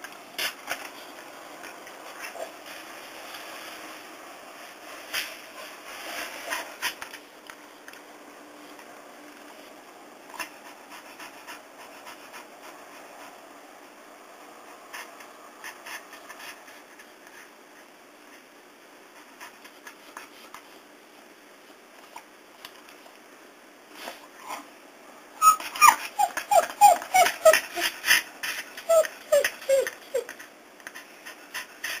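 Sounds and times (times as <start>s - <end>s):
dog whining: 24.4s - 24.7s, 25.4s - 28.1s, 28.8s - 30.4s.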